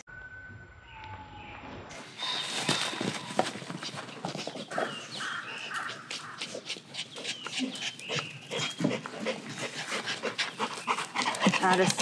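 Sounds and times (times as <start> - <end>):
dog panting: 3.6 - 12.0.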